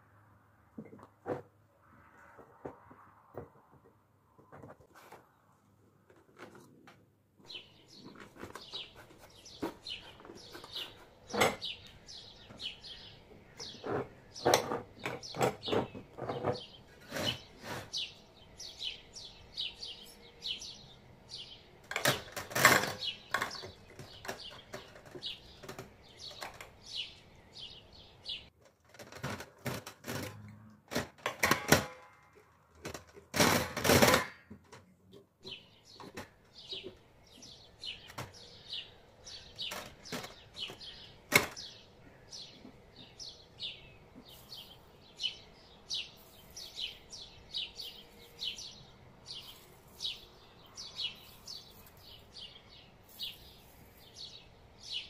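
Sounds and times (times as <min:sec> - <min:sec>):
small bird chirping: 0:07.4 - 0:28.5, 0:35.4 - 0:55.0.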